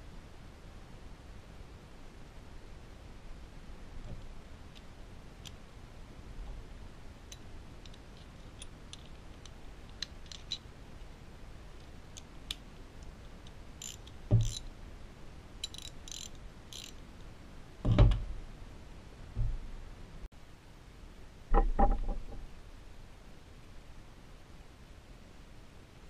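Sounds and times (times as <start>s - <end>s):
metallic clicks of ratchet sockets: 7.3s - 10.6s, 11.8s - 14.7s, 15.6s - 17.3s.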